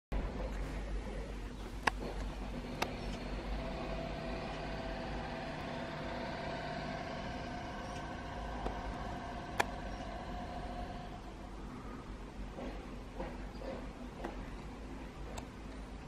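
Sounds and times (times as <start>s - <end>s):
steady mechanical hum: 0.1s - 16.0s.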